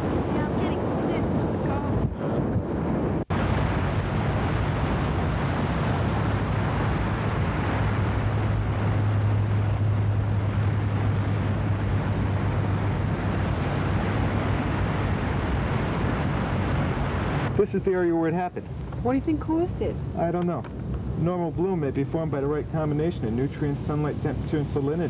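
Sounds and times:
surf: 0.0 - 25.0
wind on microphone: 0.0 - 25.0
low hum: 1.0 - 17.6.

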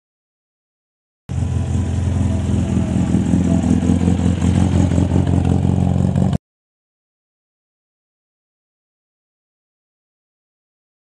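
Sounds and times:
sports car engine running: 1.3 - 6.4.

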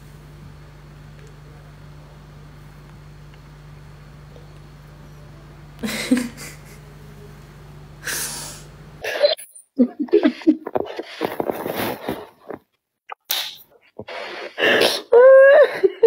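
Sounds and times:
steady low hum: 0.0 - 12.7
two women laughing hard: 5.8 - 6.9, 9.0 - 11.0, 15.1 - 16.0
woman laughing breathily: 5.8 - 6.9, 9.0 - 11.4, 14.1 - 16.0.

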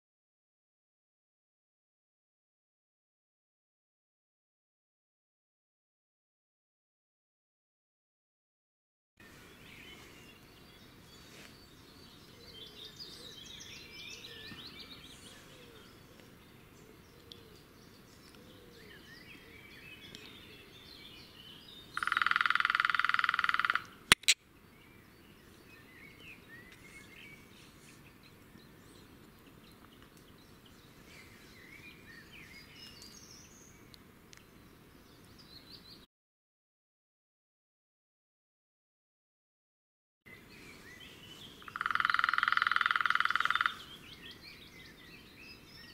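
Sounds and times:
small birds chirping: 9.2 - 36.1, 40.3 - 45.9
sharp double click: 24.1 - 24.4.

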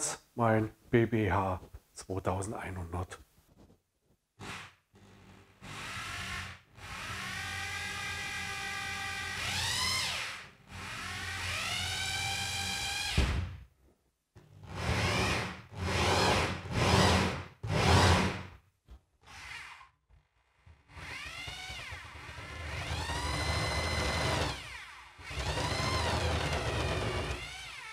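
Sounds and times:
rotary hammer drilling plasterboard: 4.4 - 13.5, 14.4 - 18.6, 19.2 - 27.9.

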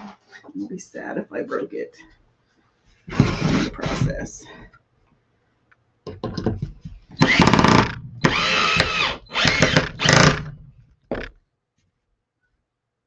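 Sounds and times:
cordless drill driving screw: 3.1 - 4.0, 7.2 - 11.3.

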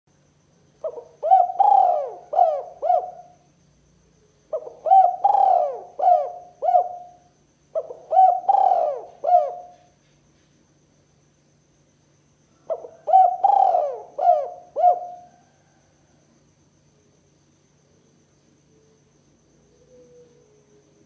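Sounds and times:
dove cooing: 0.8 - 3.4, 4.5 - 9.9, 12.6 - 15.7, 19.7 - 20.7.

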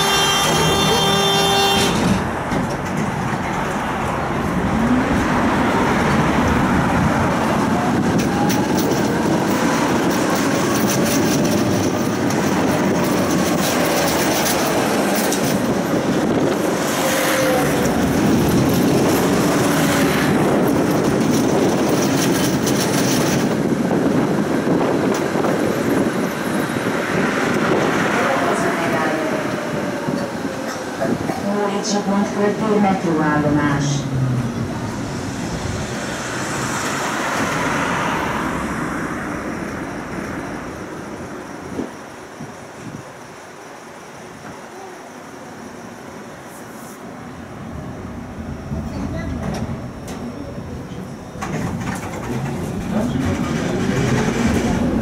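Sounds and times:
tram wheels and motors rumbling: 0.0 - 55.0
clatter over track: 1.6 - 31.6, 48.7 - 55.0.

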